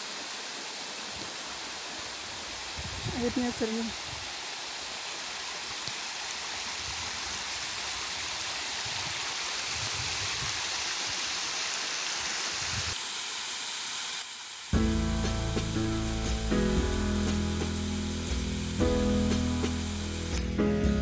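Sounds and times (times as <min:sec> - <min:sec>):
stream rushing over rocks: 0:00.0 - 0:14.8
background music: 0:14.8 - 0:21.0.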